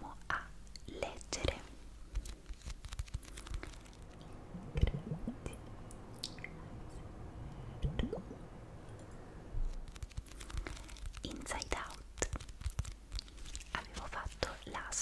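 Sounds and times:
drip-like plops: 5.9 - 6.6.

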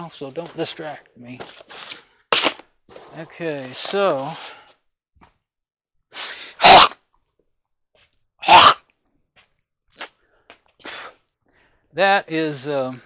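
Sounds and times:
man sneezing: 6.2 - 7.0, 8.4 - 8.8
intake of breath: 10.2 - 11.9.

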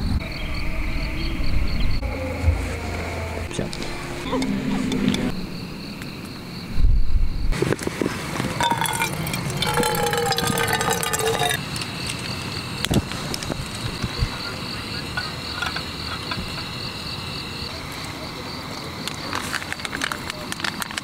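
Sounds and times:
crickets chirping: 0.0 - 21.0
water pouring into metal pot: 8.6 - 12.2.

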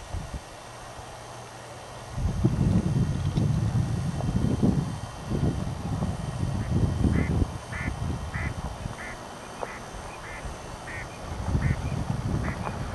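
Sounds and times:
wind rumble on microphone: 0.0 - 1.0, 2.1 - 12.9
duck calling: 7.1 - 12.7.

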